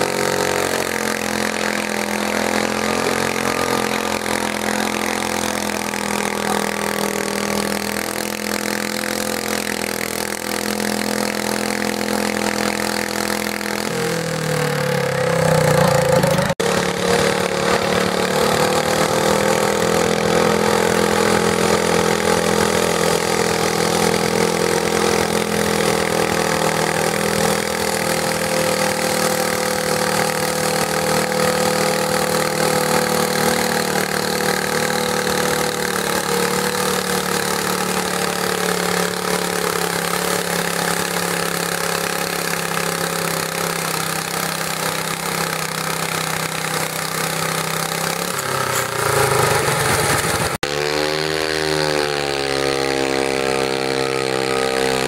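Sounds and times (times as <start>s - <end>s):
garden tractor engine revving: 0.0s - 55.0s.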